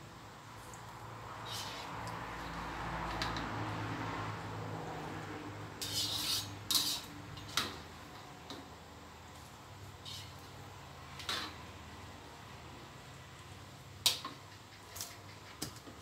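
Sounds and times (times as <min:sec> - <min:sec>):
metal utensils scraping bowl: 0:01.4 - 0:01.9, 0:05.8 - 0:07.8, 0:10.0 - 0:10.4.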